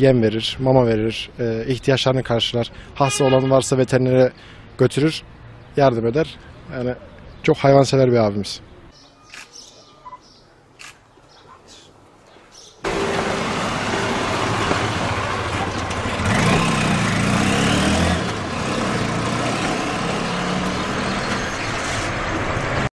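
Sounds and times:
street traffic: 0.0s - 22.9s
vehicle passing: 12.8s - 22.9s.

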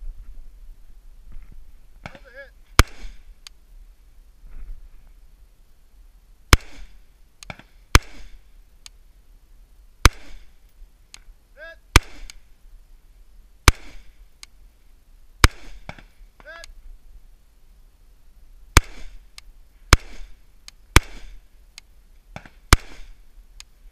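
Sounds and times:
rifle shots with echo: 2.0s - 3.3s, 6.5s - 8.5s, 10.0s - 10.6s, 11.9s - 12.4s, 13.6s - 14.2s, 15.4s - 16.1s, 18.8s - 19.3s, 19.9s - 21.5s, 22.4s - 23.3s
faint ticks: 8.8s - 9.0s, 14.3s - 14.6s, 21.7s - 21.9s.

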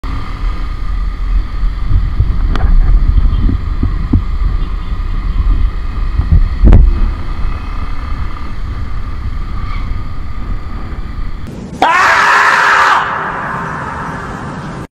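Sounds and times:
motorcycle engine: 0.0s - 11.5s
wind buffeting microphone: 0.0s - 11.5s.

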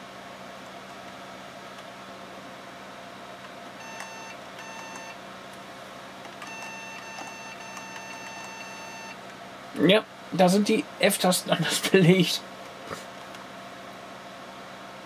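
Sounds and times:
computer fans humming: 0.0s - 15.0s
computer speaker beeping: 6.5s - 9.2s.

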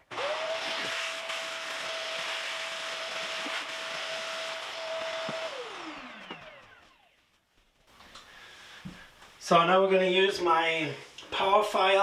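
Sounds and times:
vacuum cleaner running: 0.0s - 7.2s.

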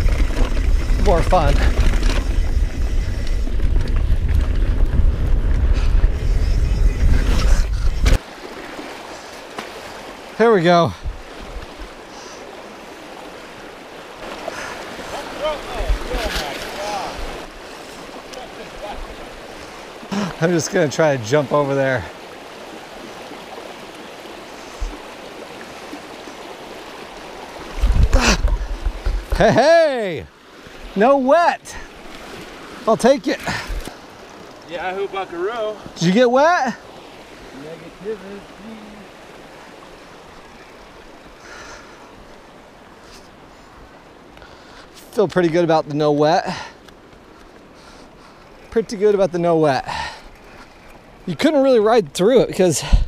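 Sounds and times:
wind buffeting microphone: 0.0s - 8.2s, 10.9s - 12.0s, 14.7s - 16.4s, 27.5s - 29.4s
tyres on packed dirt: 0.0s - 8.3s, 25.7s - 39.2s
water rushing through a stream: 0.0s - 53.0s.

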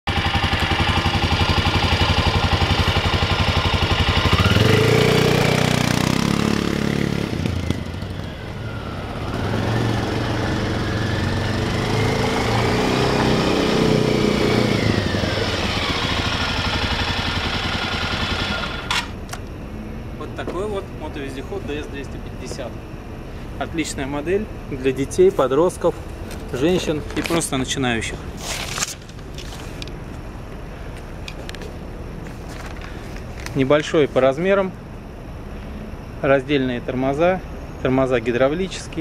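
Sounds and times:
atv engine revving: 0.1s - 19.2s.

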